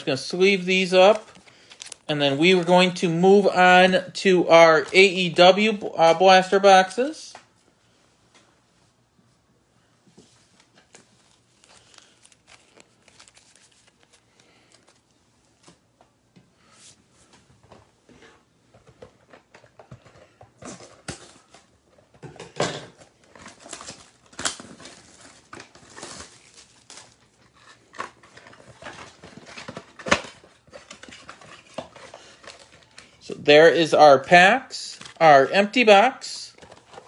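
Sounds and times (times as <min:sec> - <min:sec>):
packaging crinkling: 0:01.1 - 0:02.7, 0:10.9 - 0:15.1, 0:23.1 - 0:33.2
cards slipped into plastic sleeves: 0:10.9 - 0:15.1.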